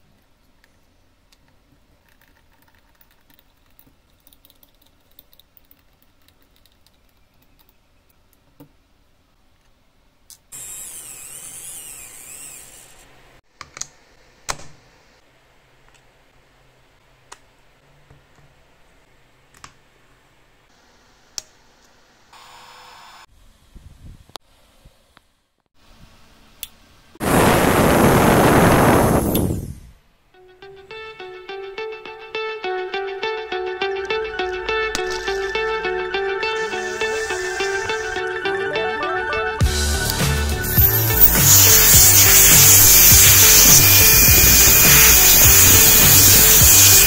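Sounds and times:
hiss: 0:27.2 - 0:30.0, 0:40.7 - 0:47.0.

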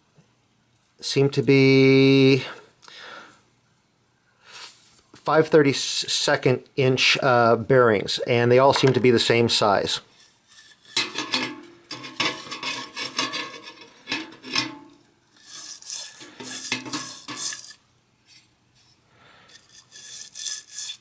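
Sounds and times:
stiff brush scrubbing metal: 0:10.1 - 0:17.8, 0:19.5 - 0:21.0.

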